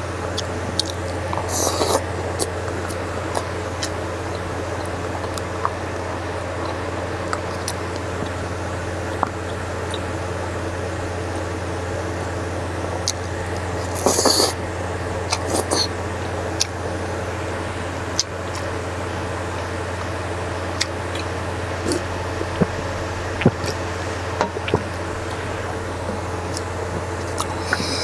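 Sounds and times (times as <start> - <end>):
steady low hum: 0.0 - 28.0
slurping: 0.4 - 8.4, 13.0 - 17.3, 20.8 - 28.0.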